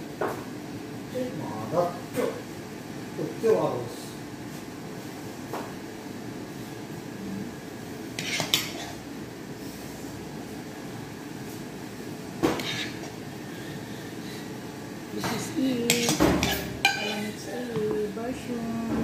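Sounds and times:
steady low hum: 0:00.0 - 0:19.0
kitchenware clinking: 0:08.2 - 0:09.0, 0:15.2 - 0:18.0.

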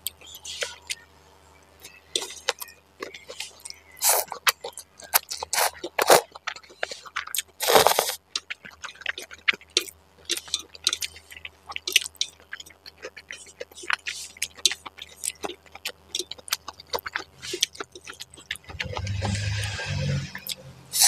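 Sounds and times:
wet chewing and smacking: 0:00.0 - 0:01.0, 0:01.8 - 0:21.0
noodle slurps: 0:03.4 - 0:04.4, 0:05.4 - 0:08.2.

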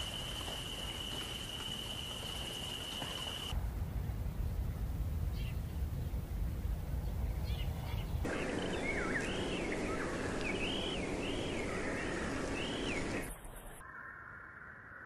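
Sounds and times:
outdoor hiss: 0:00.0 - 0:03.6, 0:08.2 - 0:13.8
songbird whistling: 0:08.3 - 0:13.3.

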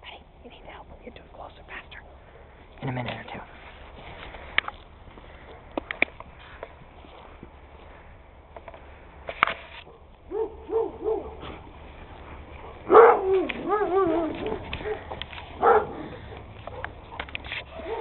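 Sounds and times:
dog whining: 0:12.9 - 0:16.9.

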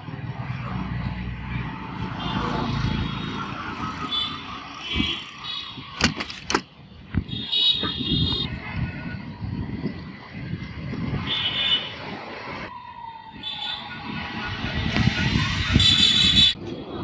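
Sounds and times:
passing vehicles rumble: 0:00.0 - 0:17.0.

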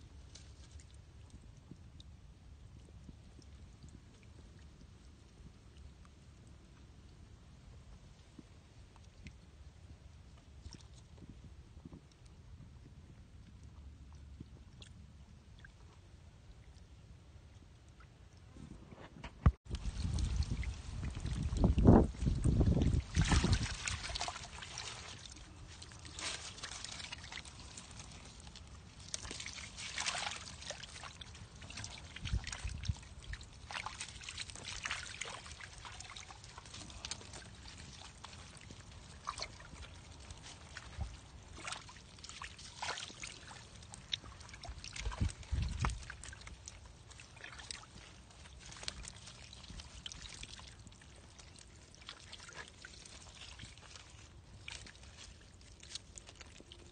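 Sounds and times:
fish splashing in water: 0:19.7 - 0:56.9.

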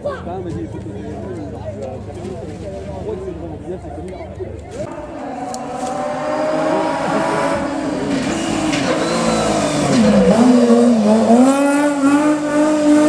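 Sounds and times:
race car engine running hard: 0:04.8 - 0:13.0.

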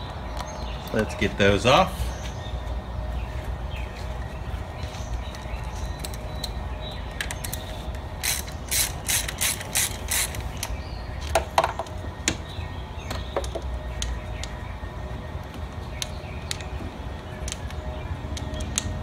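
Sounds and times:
ratchet wrench clicking: 0:08.2 - 0:10.7.

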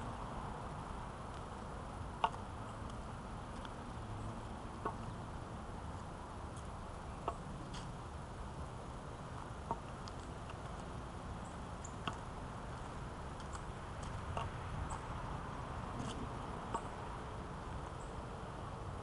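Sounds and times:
walking stick tapping: 0:02.2 - 0:03.8, 0:04.7 - 0:05.1, 0:09.6 - 0:11.0, 0:11.8 - 0:12.3, 0:13.4 - 0:14.6.

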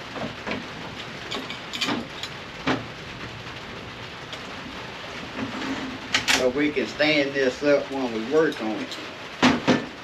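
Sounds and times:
wheels knocking and clicking: 0:00.0 - 0:03.4
steady rain: 0:00.0 - 0:10.0.

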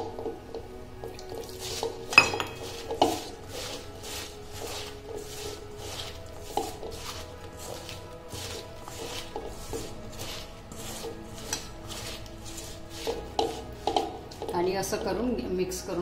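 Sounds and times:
wet rubbing of vegetable slices: 0:01.0 - 0:15.0
metallic clinks against bowl: 0:02.2 - 0:02.8.

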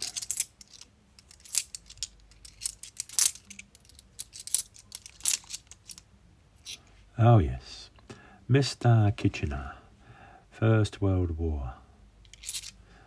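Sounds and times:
coins clinking: 0:00.0 - 0:06.0, 0:12.3 - 0:12.8.

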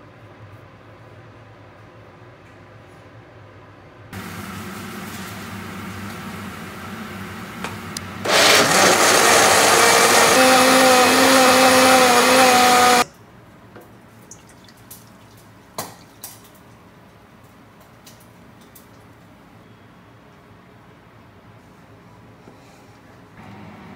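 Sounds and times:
blender running: 0:08.2 - 0:13.1.

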